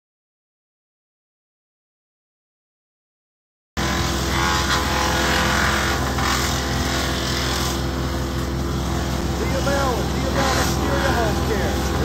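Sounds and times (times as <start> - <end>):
wood chipper chipping branches: 3.8 - 12.0
tractor diesel engine running: 6.0 - 12.0.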